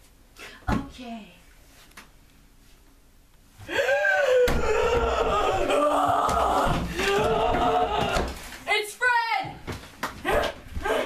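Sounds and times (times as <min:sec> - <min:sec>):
person screaming: 0:03.7 - 0:08.4.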